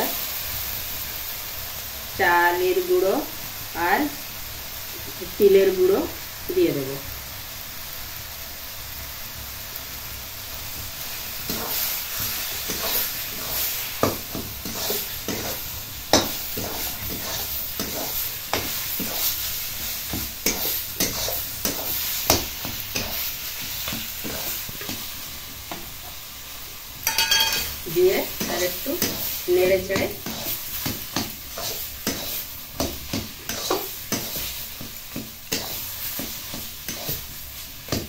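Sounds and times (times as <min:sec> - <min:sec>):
leaves sizzling in metal pan: 0:00.0 - 0:38.0
spatula scraping and clinking pan: 0:12.6 - 0:19.3, 0:27.0 - 0:27.8, 0:29.9 - 0:37.3.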